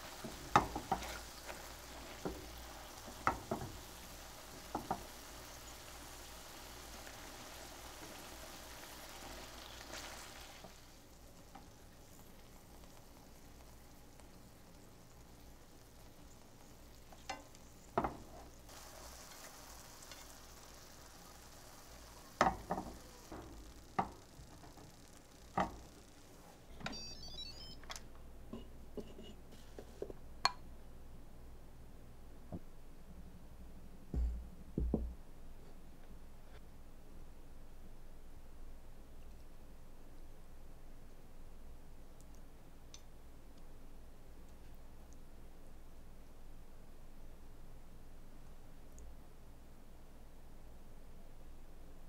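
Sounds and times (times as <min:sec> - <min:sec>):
sauce sizzling in a pan: 0:00.0 - 0:26.4
short electronic beeps: 0:26.9 - 0:27.8.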